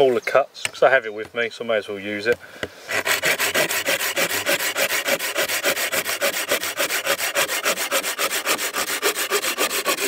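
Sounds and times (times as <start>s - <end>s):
saw rasping through wood: 2.9s - 10.0s.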